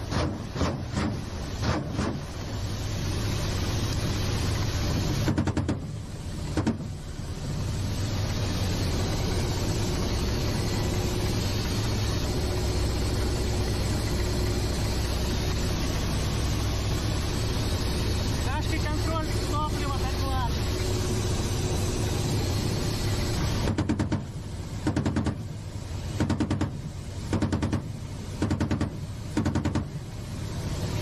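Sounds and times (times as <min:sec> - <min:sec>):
helicopter engine and rotor drone: 0:03.0 - 0:25.6
sharp knocks: 0:05.2 - 0:05.9, 0:06.5 - 0:06.9, 0:23.7 - 0:25.4, 0:26.2 - 0:30.0.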